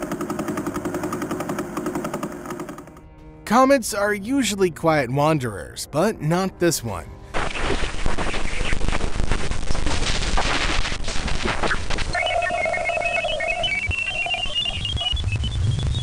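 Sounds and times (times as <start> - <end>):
crackling static: 7.3 - 16.0
stepped whistle-like tones: 11.6 - 16.0.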